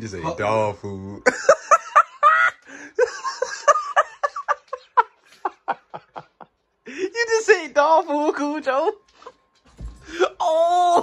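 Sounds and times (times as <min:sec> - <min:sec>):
person laughing: 0:01.3 - 0:06.5.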